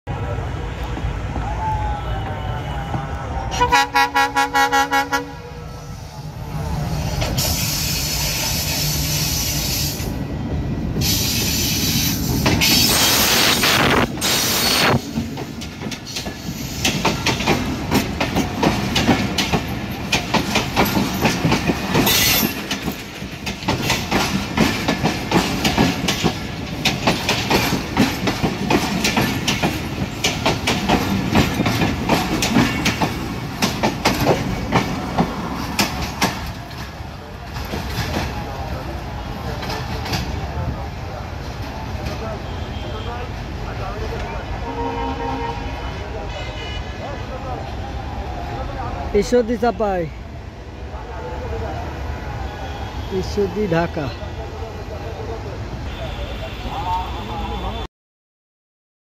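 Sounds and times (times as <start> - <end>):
diesel locomotive running past: 0.1 - 53.1
locomotive horn blast: 2.2 - 5.7, 44.6 - 47.0
train wheels clickety-clack: 11.0 - 38.8, 39.4 - 40.6.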